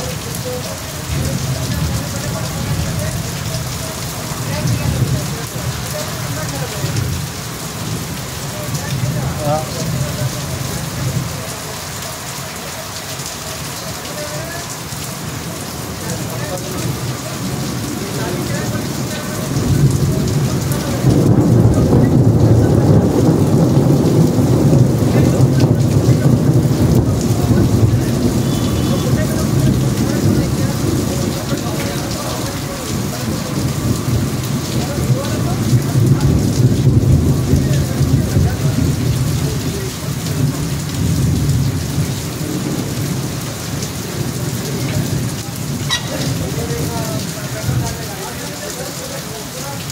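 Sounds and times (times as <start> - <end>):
heavy rain falling: 0.0 - 49.9
thunder rumbling: 15.4 - 48.0.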